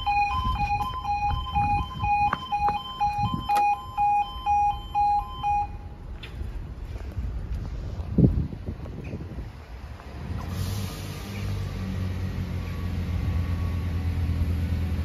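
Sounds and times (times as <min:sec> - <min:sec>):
level crossing two-tone alarm: 0:00.0 - 0:05.9.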